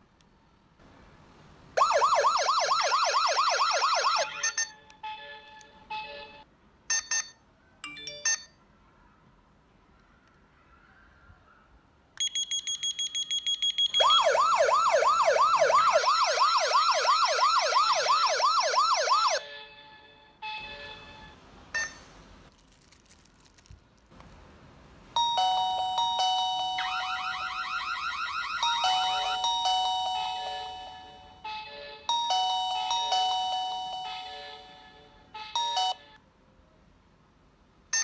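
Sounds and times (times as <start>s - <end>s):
siren rising and falling: 1.8s - 4.6s, 14.0s - 19.4s, 26.5s - 30.6s
steady electronic alarm tones: 12.3s - 19.4s.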